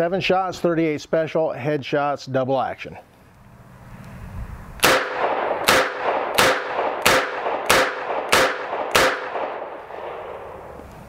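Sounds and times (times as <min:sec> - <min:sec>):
revolver shots with echo: 0:04.8 - 0:10.7.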